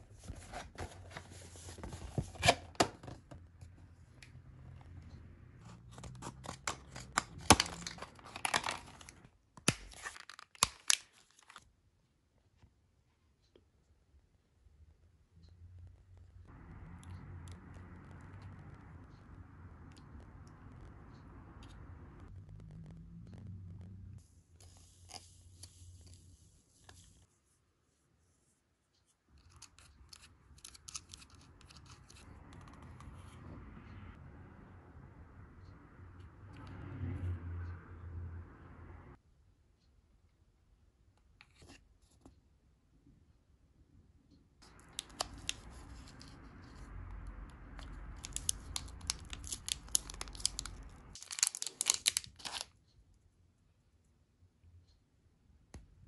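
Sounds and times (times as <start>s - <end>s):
plastic packet tearing: 6.4s - 11.6s, 48.2s - 52.7s
plastic packet crinkling: 9.8s - 11.6s, 48.2s - 52.7s.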